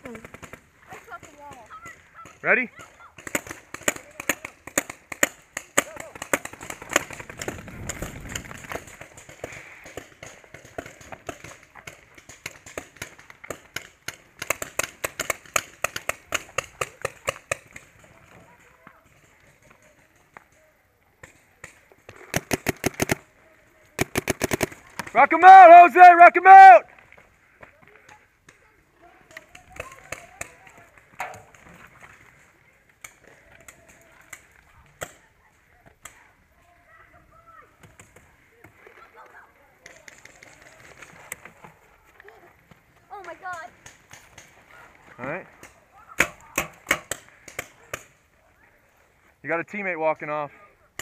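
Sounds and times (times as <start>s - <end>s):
paintball markers firing: 0.0s - 18.1s, 21.2s - 23.3s, 24.0s - 25.2s, 45.6s - 48.3s.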